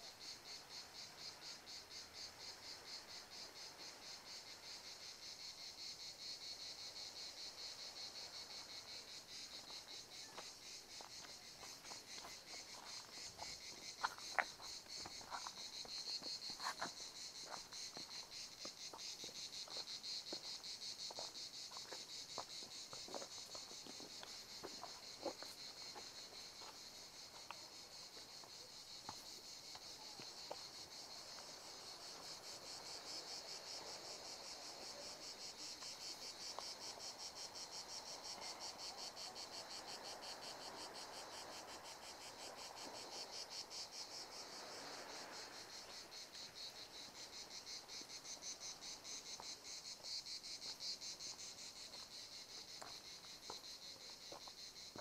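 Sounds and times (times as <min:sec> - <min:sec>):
insects chirring: 0:00.0 - 0:55.0
footsteps on stony path: 0:09.5 - 0:30.7, 0:50.6 - 0:55.0.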